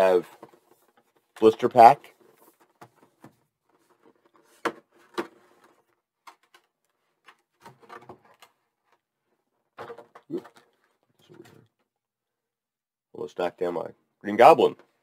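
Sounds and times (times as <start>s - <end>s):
plastic crinkling and clicking: 2.2s - 9.0s.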